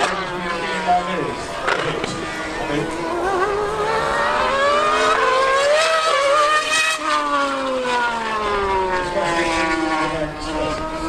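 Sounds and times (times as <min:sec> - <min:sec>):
racing engines accelerating: 0:00.0 - 0:11.0
vehicle passing by: 0:00.0 - 0:11.0.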